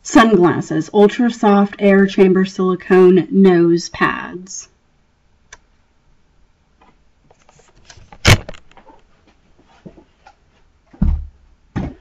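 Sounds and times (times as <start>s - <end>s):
dull thumps: 10.9s - 12.0s.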